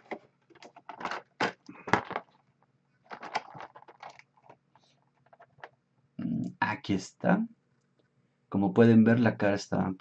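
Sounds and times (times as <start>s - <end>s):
plastic toy against cardboard packaging: 0.0s - 5.8s.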